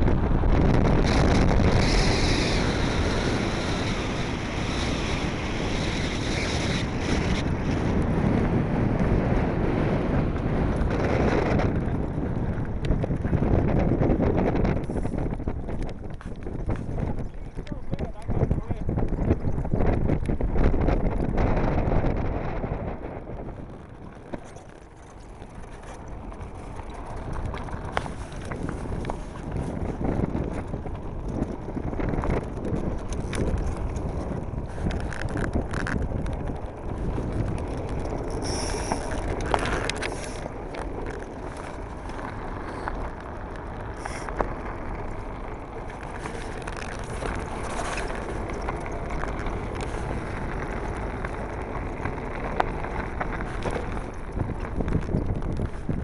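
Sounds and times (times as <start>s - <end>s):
cart clicks and rattles: 0.0s - 56.0s
wheels rumbling on hard ground: 0.0s - 56.0s
wind buffeting microphone: 0.0s - 56.0s.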